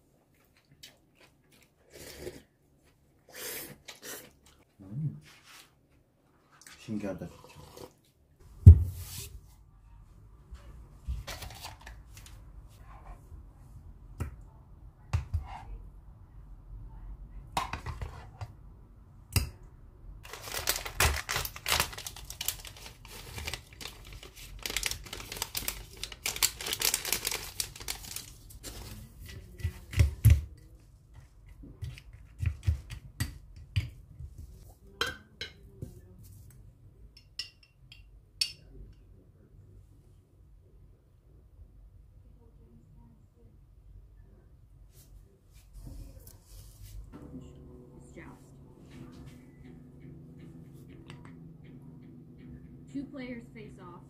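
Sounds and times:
plastic packet crinkling: 20.3 - 29.0.

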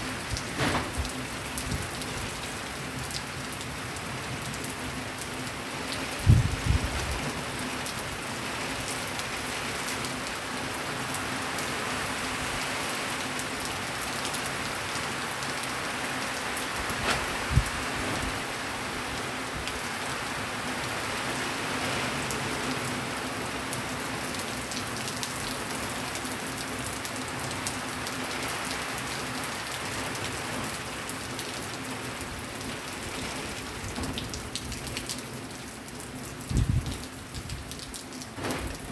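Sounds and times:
heavy rain falling: 0.0 - 38.9
water running off roof: 27.8 - 38.9.

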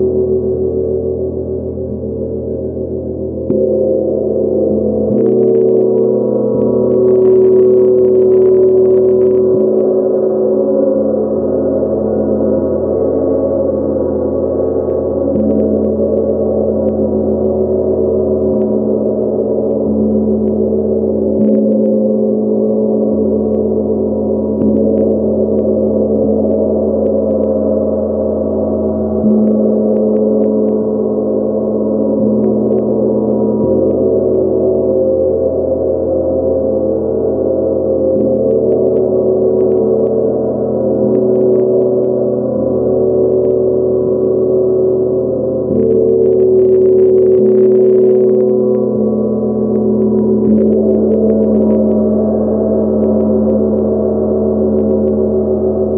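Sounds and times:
gong ringing: 0.0 - 7.6.

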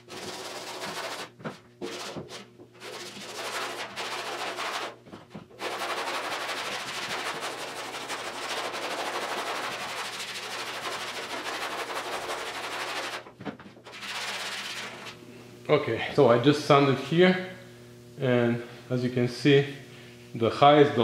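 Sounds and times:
sanding block scratching a panel: 0.0 - 5.0, 5.6 - 13.2, 13.9 - 15.2.

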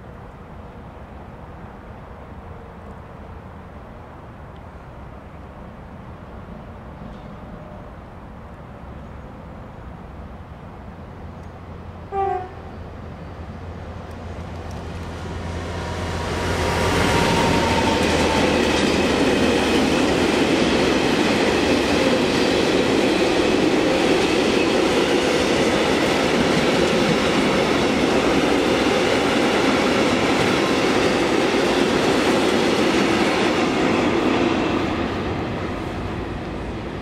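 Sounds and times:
locomotive engine hum: 0.0 - 37.0
train wheels on rails: 12.9 - 37.0.

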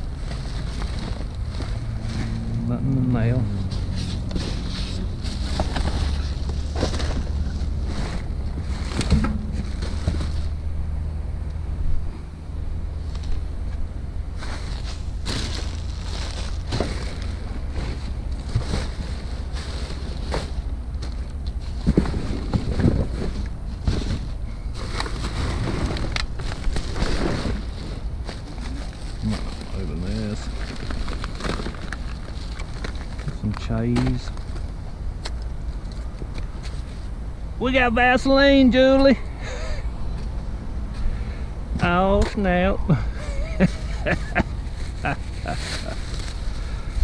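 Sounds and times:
rustling through trash: 0.0 - 10.7, 13.0 - 34.8, 41.8 - 47.0
steady low rumble: 0.0 - 37.7
sharp knocks of goods handled: 8.9 - 10.4.

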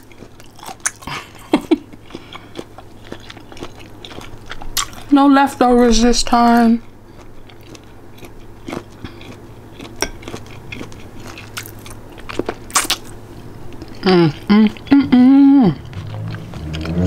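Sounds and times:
chewing and crunching food: 0.0 - 17.0
person making wordless sounds: 14.0 - 16.5.

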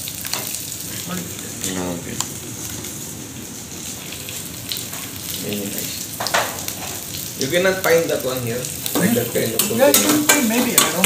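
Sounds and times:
oil sizzling in a pan: 0.0 - 11.0.

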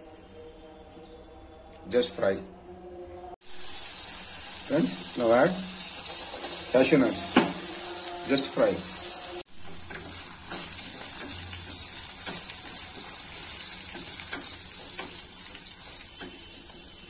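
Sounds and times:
nuts sizzling in hot oil: 3.4 - 17.0.

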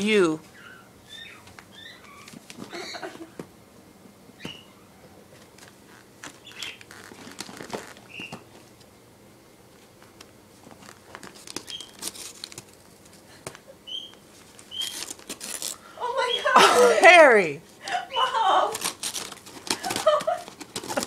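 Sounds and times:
wrapping paper crinkling: 5.5 - 8.7, 10.5 - 13.6, 14.2 - 16.4, 17.8 - 21.0.

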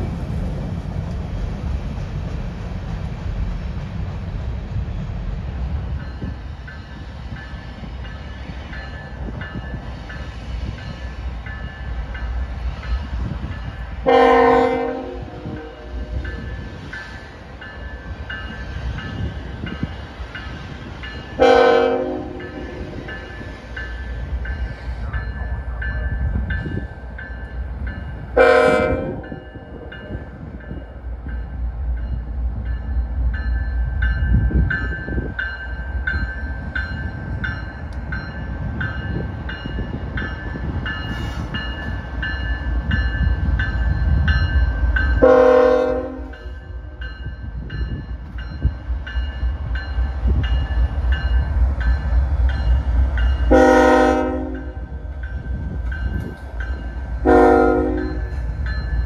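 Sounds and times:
train rumbling: 0.0 - 59.0
train horn blasts: 14.0 - 16.2, 21.4 - 23.0, 28.4 - 29.3, 45.2 - 46.5, 53.5 - 54.9, 57.2 - 58.3.

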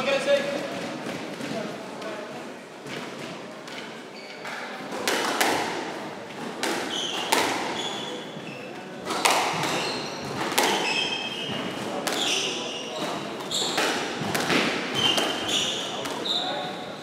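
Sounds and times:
rackets striking ball: 2.8 - 16.6
ball hitting court walls: 2.9 - 16.4
shoes squeaking on wooden floor: 3.7 - 4.6, 6.6 - 17.0.

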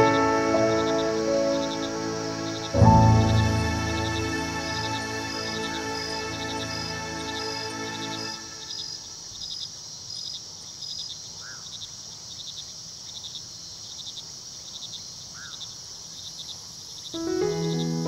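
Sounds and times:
music with clear notes: 0.0 - 8.6, 17.2 - 18.0
crickets chirping: 0.0 - 18.0
steady high hiss: 0.0 - 18.0.

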